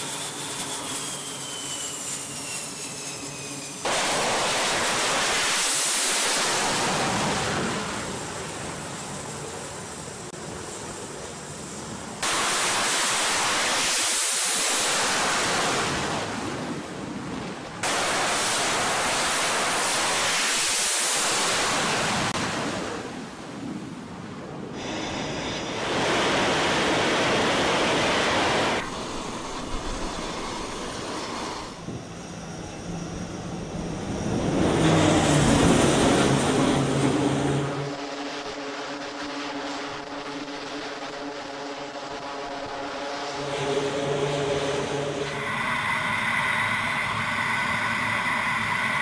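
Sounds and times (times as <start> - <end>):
jet engine noise: 0.0 - 49.0
wind noise: 14.6 - 49.0
turboprop drone: 24.6 - 49.0.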